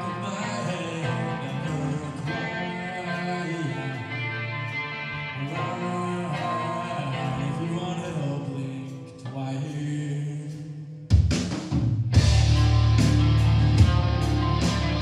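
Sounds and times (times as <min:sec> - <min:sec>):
heavy metal band playing: 0:00.0 - 0:08.4, 0:12.1 - 0:15.0
quiet guitar passage: 0:12.1 - 0:15.0.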